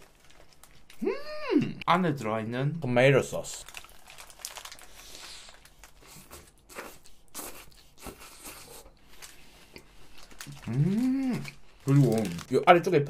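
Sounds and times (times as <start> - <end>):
person biting and chewing: 4.8 - 9.0.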